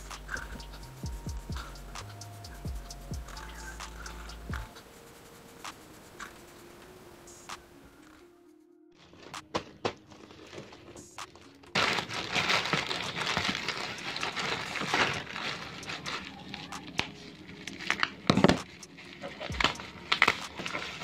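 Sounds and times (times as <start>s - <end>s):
plastic wrapping crinkling: 9.0s - 21.0s.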